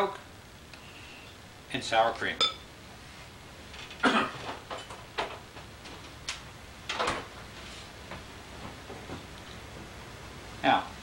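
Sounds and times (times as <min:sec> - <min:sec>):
kitchen items clattering: 0:03.7 - 0:06.0.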